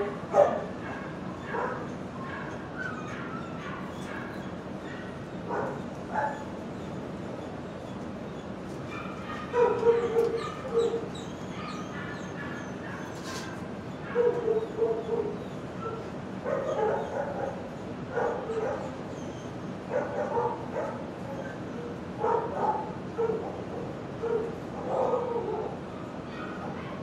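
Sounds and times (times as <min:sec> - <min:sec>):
dogs barking and yipping: 0:00.0 - 0:27.0.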